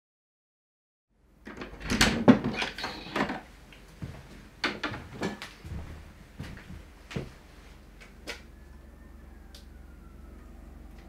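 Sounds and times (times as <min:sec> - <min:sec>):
wooden door knocking and rattling: 0:01.5 - 0:03.4.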